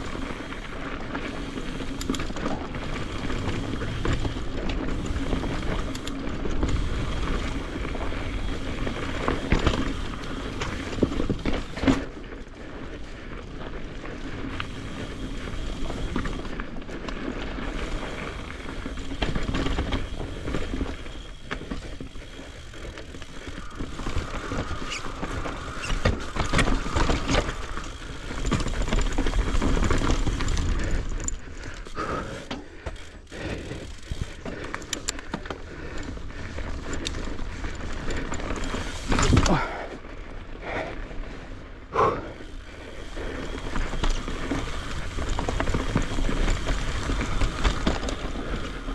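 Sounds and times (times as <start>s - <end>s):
tyre and wind noise: 0.0s - 48.9s
bike knocks and rattles: 1.4s - 12.2s, 17.6s - 39.7s.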